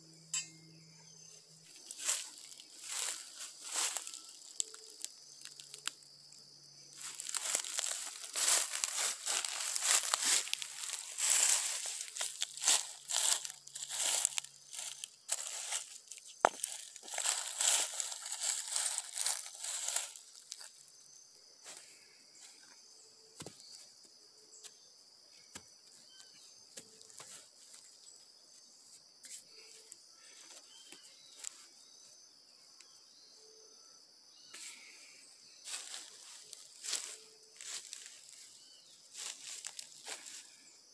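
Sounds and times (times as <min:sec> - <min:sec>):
faint chirps: 0:00.0 - 0:40.9
high insect drone: 0:00.0 - 0:40.9
dry leaves rustling under hand: 0:01.8 - 0:06.0, 0:06.9 - 0:20.9, 0:35.7 - 0:40.6.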